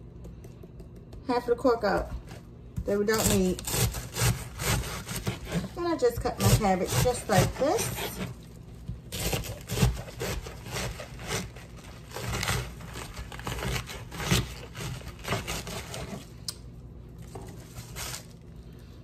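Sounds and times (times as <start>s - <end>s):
knife slicing cabbage: 2.2s - 8.5s, 9.1s - 16.5s, 17.2s - 18.3s
cabbage leaves tearing: 9.1s - 16.3s, 17.2s - 18.5s.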